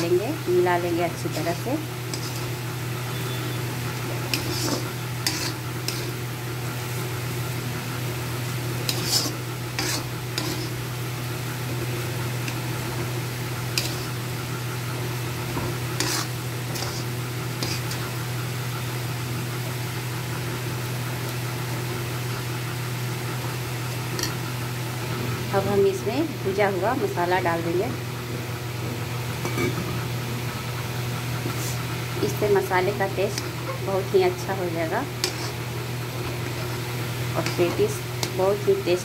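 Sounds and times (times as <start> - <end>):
metal spoon scraping a pan: 1.3 - 2.6, 4.0 - 6.2, 8.8 - 10.8, 13.6 - 14.3, 15.5 - 18.2, 35.0 - 35.7, 37.3 - 38.6.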